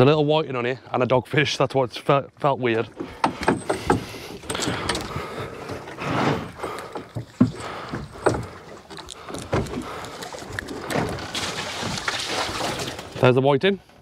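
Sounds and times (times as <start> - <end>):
knocks and rustles: 3.0 - 13.3.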